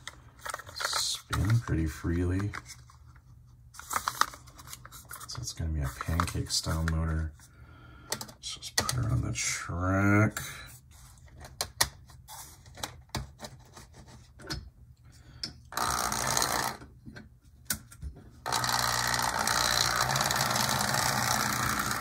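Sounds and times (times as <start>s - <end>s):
model train motor whirring: 18.5s - 22.0s.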